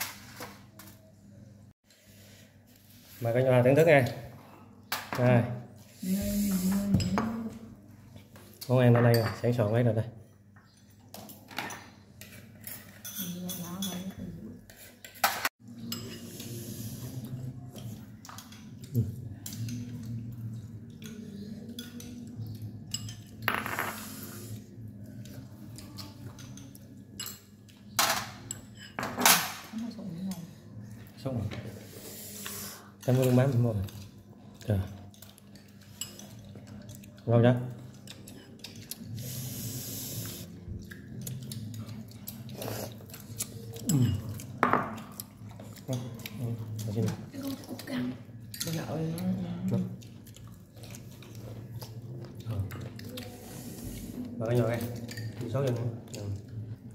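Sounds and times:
chewing and gnawing meat: 0:40.7 - 0:48.0, 0:48.7 - 0:53.4.

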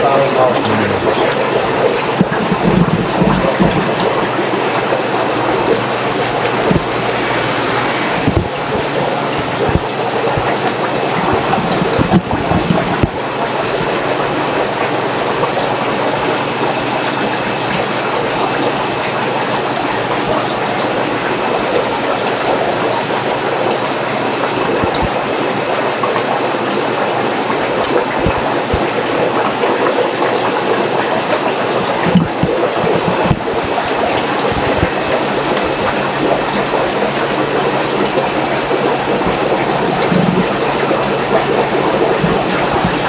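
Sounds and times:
water rushing through aquarium tanks: 0:00.0 - 0:43.0.

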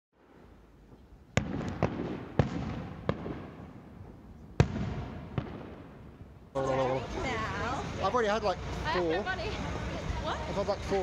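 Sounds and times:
fireworks bangs with rumbling echo: 0:01.3 - 0:06.3.

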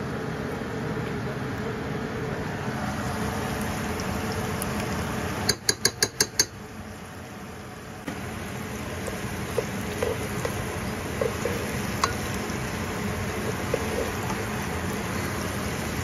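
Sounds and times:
metal spoon tapping a rim: 0:05.5 - 0:06.6
steady hiss: 0:08.1 - 0:16.0.

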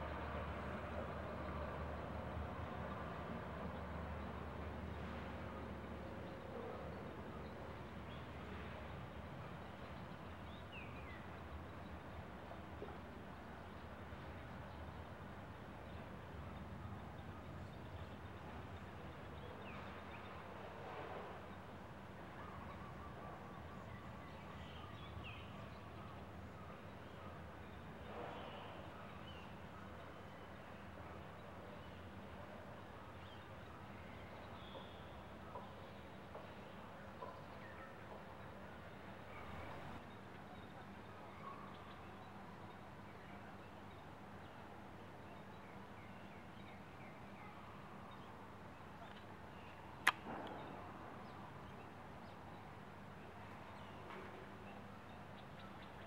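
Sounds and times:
sharp click: 0:50.0 - 0:50.6.

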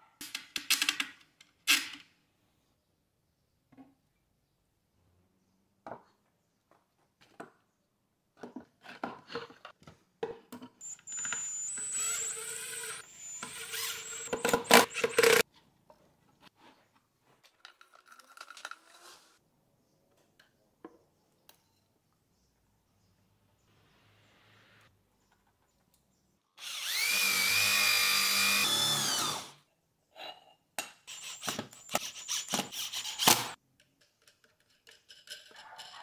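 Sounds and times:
impact driver motor whine: 0:10.8 - 0:15.4, 0:26.6 - 0:29.5.

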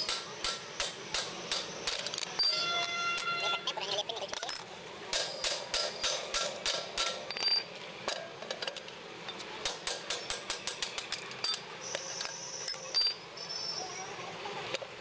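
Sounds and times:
hammer striking steel punch: 0:05.1 - 0:07.6.

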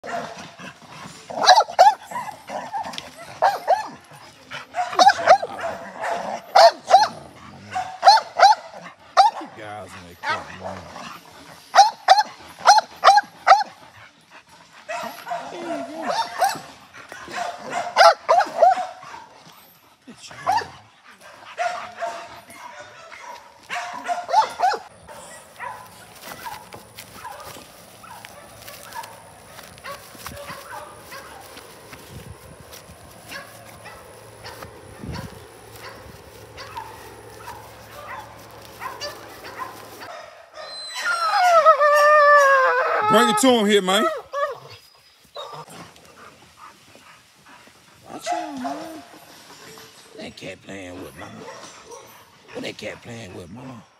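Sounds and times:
dog barking: 0:00.0 - 0:00.5, 0:01.3 - 0:02.3, 0:03.2 - 0:04.0, 0:04.7 - 0:09.6, 0:10.2 - 0:10.6, 0:11.7 - 0:13.8, 0:14.9 - 0:19.3, 0:20.4 - 0:20.8, 0:21.5 - 0:29.2, 0:29.8 - 0:31.5, 0:33.3 - 0:36.0, 0:36.6 - 0:40.7, 0:48.2 - 0:49.1, 0:51.3 - 0:52.2.

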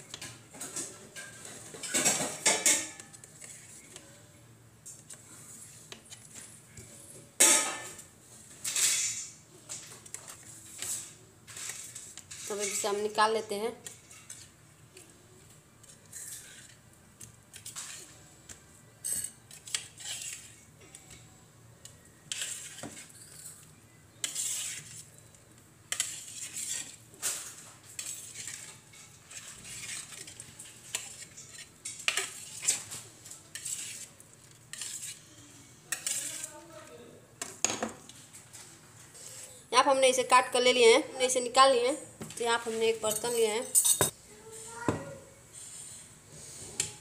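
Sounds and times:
metal utensil scraping a metal tray: 0:08.6 - 0:13.2, 0:15.9 - 0:16.8, 0:19.0 - 0:21.0, 0:22.3 - 0:25.2, 0:25.9 - 0:35.3, 0:35.9 - 0:36.7.

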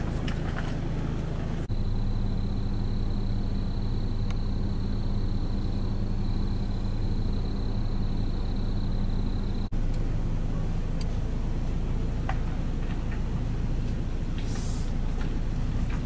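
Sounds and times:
engine idling: 0:00.0 - 0:16.0
faint high whine: 0:01.7 - 0:11.6.

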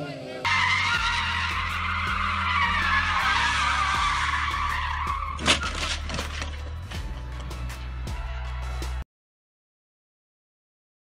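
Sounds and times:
tyres squealing: 0:00.5 - 0:06.8.

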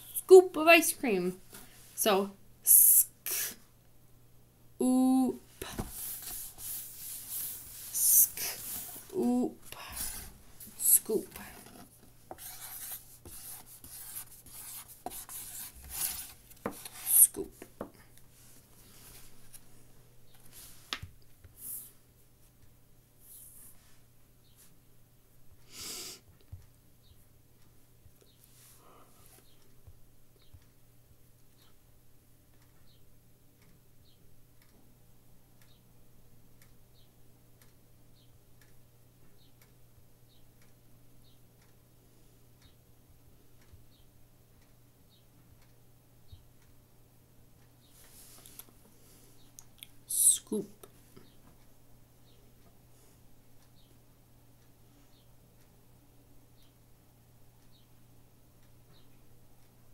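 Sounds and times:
pen scratching on paper: 0:09.8 - 0:17.4
faint regular ticks: 0:35.6 - 0:35.8, 0:36.6 - 0:41.8.

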